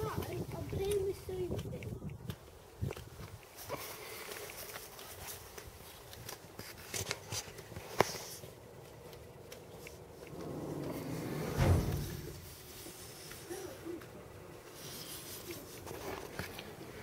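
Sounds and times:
low rumble: 0:10.3 - 0:12.6
thump: 0:11.3 - 0:12.5.

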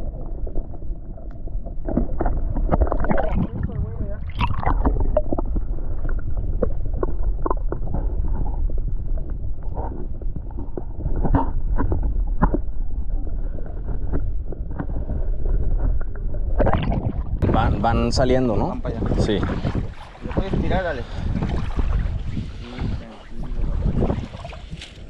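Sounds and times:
wind buffeting microphone: 0:02.3 - 0:25.0
light water splashes: 0:17.8 - 0:25.0.

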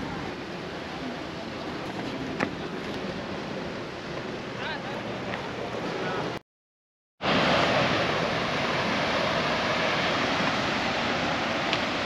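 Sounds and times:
sea surf breaking on rocks: 0:07.2 - 0:12.0.

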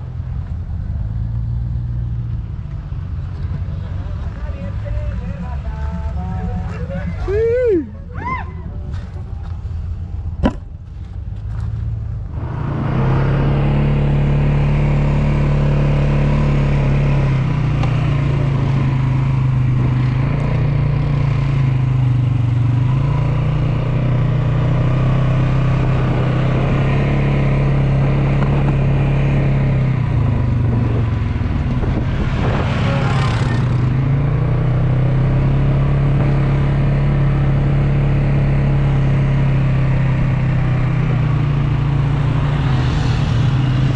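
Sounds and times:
vehicle engine running: 0:00.0 - 0:08.0, 0:08.8 - 0:43.9
rising whoosh: 0:12.2 - 0:15.7, 0:29.5 - 0:36.9, 0:40.0 - 0:43.9.

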